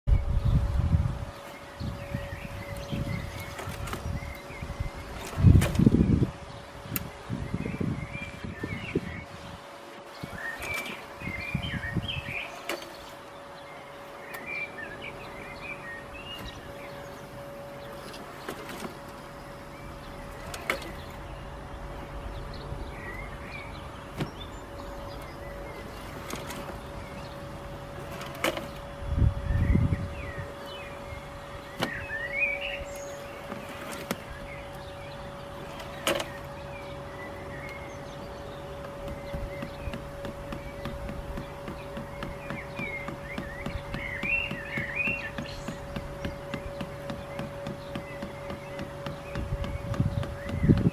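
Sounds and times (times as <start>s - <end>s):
birds chirping: 0.1s - 50.9s
robot mower motor hum: 10.1s - 50.9s
low rumbles: 10.3s - 50.9s.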